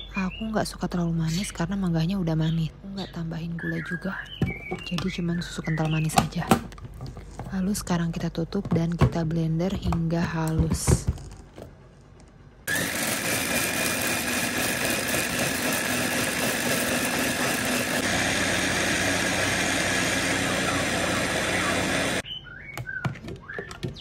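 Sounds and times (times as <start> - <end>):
electric blender running: 12.7 - 22.2.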